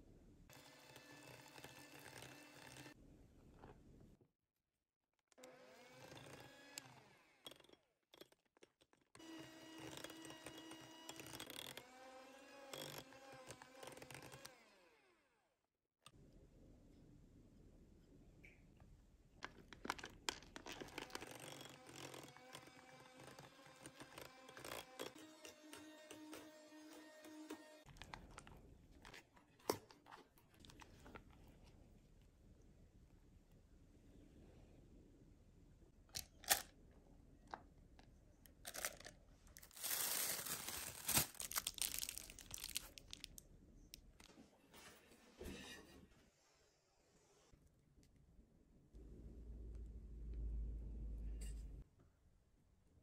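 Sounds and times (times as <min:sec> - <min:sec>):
electric hand mixer running: 0:09.2 - 0:15.0, 0:20.9 - 0:27.9
plastic bag crinkling: 0:19.6 - 0:22.6, 0:38.6 - 0:43.4.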